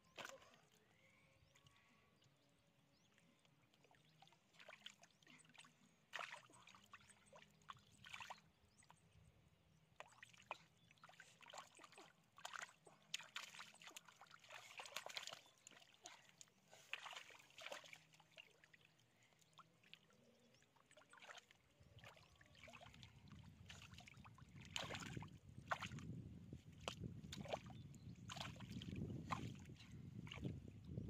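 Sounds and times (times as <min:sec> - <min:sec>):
hands squelching through mud: 0:11.8 - 0:18.2.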